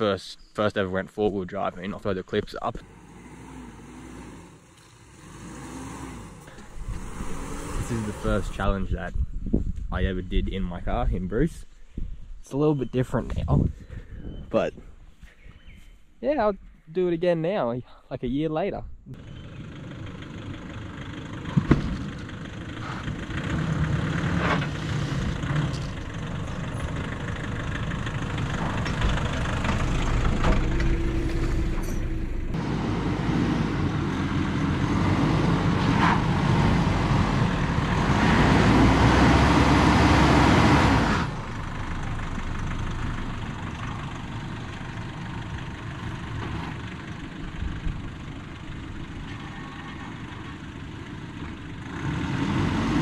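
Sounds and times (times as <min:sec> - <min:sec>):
engine running at low revs: 0:01.8 - 0:10.4, 0:19.1 - 0:53.0.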